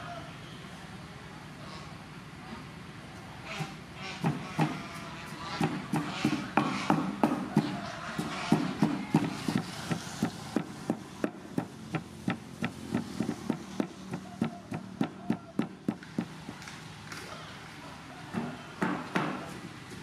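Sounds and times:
wooden pestle pounding in mortar: 5.6 - 16.4, 18.3 - 19.6.

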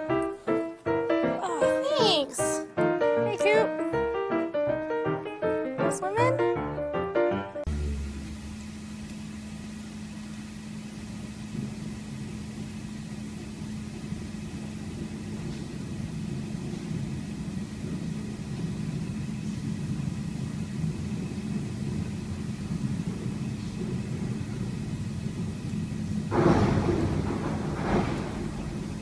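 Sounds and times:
low mechanical hum and rumble: 7.6 - 29.0.

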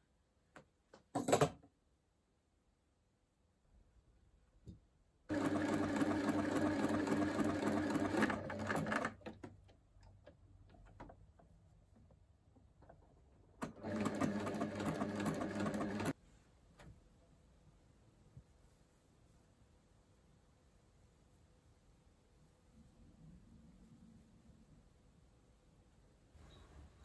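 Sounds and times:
sewing machine stitching: 5.3 - 9.5, 13.6 - 16.2.

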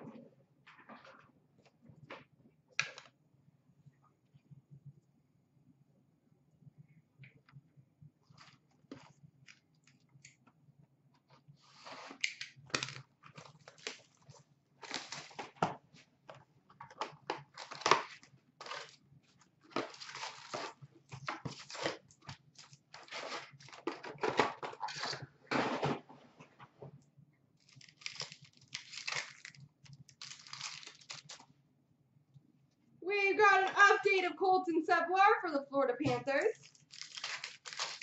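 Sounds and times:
foil packs crinkling and rustling: 11.8 - 15.7, 17.0 - 19.0, 19.7 - 25.2, 27.6 - 31.5, 36.6 - 38.0
cardboard tearing: 17.5 - 19.0, 19.8 - 22.0, 22.6 - 24.1, 27.7 - 29.6, 30.2 - 31.4, 36.6 - 38.0.

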